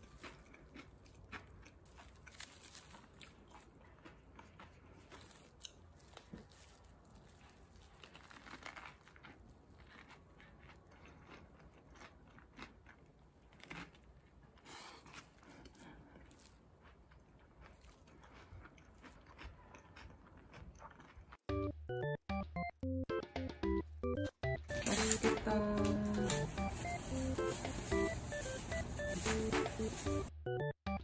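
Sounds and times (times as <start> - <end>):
chewing a soft wrap: 0.0 - 21.5.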